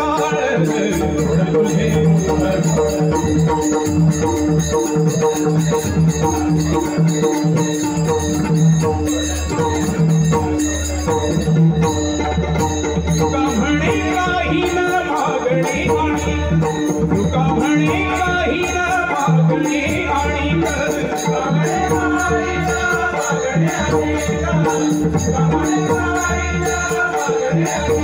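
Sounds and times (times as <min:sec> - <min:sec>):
people singing: 0:00.0 - 0:04.0, 0:13.1 - 0:28.0
hand drum rhythm: 0:00.0 - 0:28.0
harmonium-like held tones: 0:00.0 - 0:28.0.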